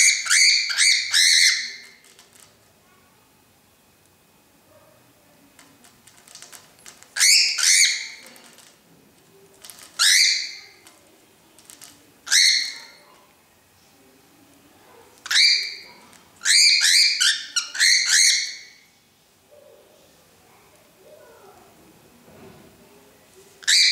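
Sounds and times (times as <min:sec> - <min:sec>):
cockatiel squawking: 0:00.0 - 0:01.9, 0:12.3 - 0:13.0, 0:15.3 - 0:18.8.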